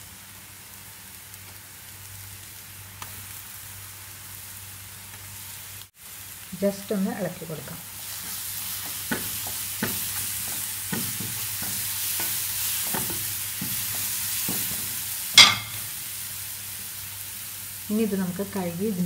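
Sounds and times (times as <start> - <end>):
food sizzling in oil: 0.0 - 19.0
spatula scraping and tapping pan: 8.1 - 16.0
spatula clacking down: 8.2 - 16.0.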